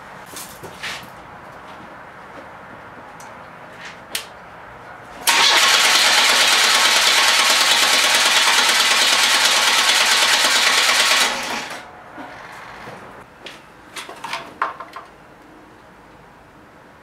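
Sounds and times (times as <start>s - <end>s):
car engine cranking: 5.2s - 11.8s.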